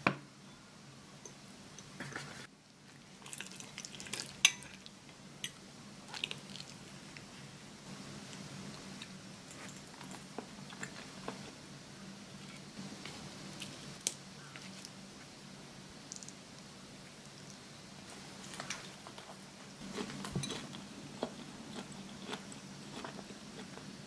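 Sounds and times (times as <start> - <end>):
faint low hum: 0.0 - 24.0.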